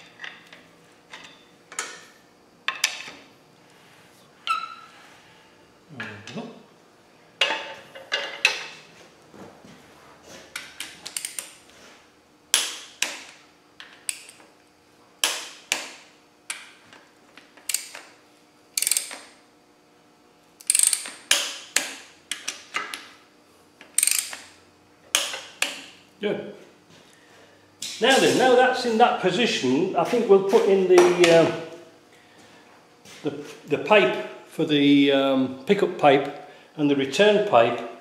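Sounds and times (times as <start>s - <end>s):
ratchet wrench clicking: 11.1s - 11.5s, 17.7s - 18.0s, 18.8s - 19.3s, 20.6s - 21.6s, 24.0s - 24.4s.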